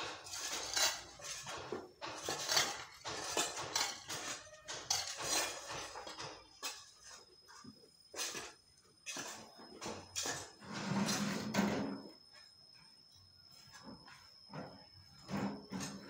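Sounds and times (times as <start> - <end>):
hoe scraping rocky soil: 0.0 - 1.5, 2.1 - 6.0, 10.3 - 11.6.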